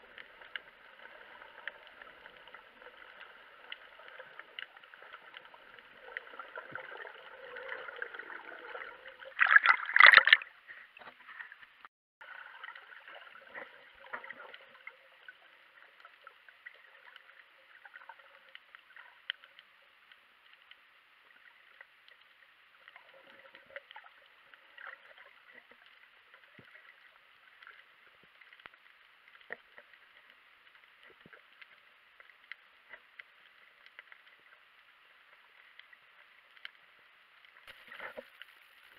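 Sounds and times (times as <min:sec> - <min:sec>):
light crackles and clicks: 0:00.0 - 0:09.3, 0:10.3 - 0:38.9
rush of water and bubbles: 0:00.0 - 0:11.6, 0:12.2 - 0:38.9
faint underwater hiss: 0:00.0 - 0:38.9.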